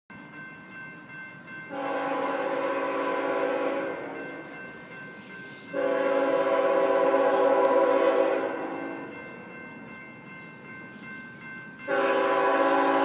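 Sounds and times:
locomotive air horn blast: 0:01.7 - 0:04.2, 0:05.7 - 0:09.0, 0:11.9 - 0:13.0.

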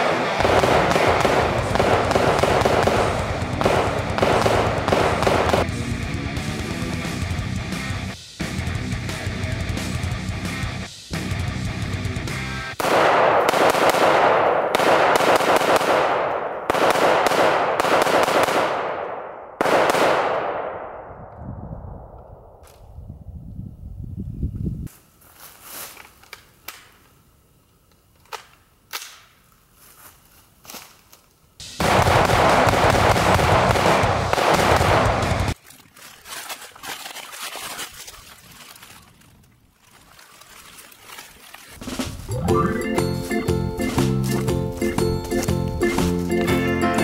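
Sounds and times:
rifle firing rapidly with echo: 0:00.0 - 0:05.7, 0:12.8 - 0:21.0, 0:31.8 - 0:35.6.

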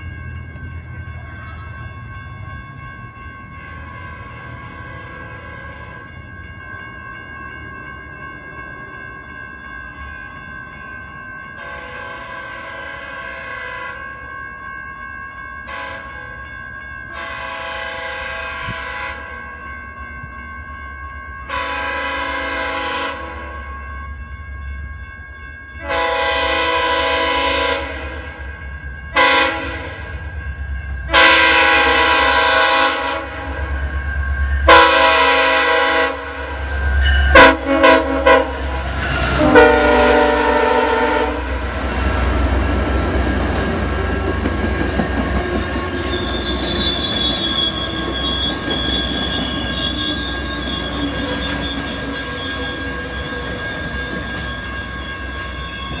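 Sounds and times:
train engine and wheels rumbling: 0:00.0 - 0:56.0
train air horn: 0:11.6 - 0:14.0, 0:15.7 - 0:16.4, 0:17.1 - 0:19.4, 0:21.5 - 0:23.6, 0:25.8 - 0:28.4, 0:29.1 - 0:30.0, 0:31.1 - 0:33.7, 0:34.6 - 0:41.6
train wheels squealing: 0:33.4 - 0:34.7, 0:36.5 - 0:37.5, 0:38.5 - 0:39.5, 0:41.5 - 0:56.0.

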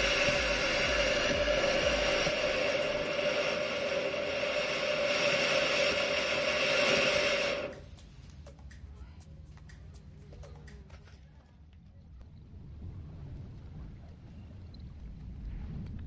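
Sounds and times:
firework fountain hissing: 0:00.0 - 0:07.9.

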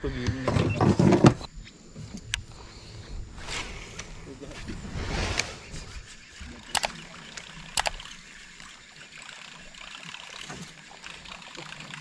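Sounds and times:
fishing reel clicks: 0:06.7 - 0:12.0
fishing reel whirring: 0:06.8 - 0:12.0.

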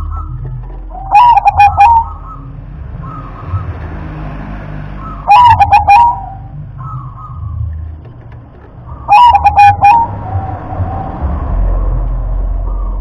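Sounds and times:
dove cooing: 0:00.0 - 0:03.7, 0:05.0 - 0:07.6, 0:08.9 - 0:11.1.

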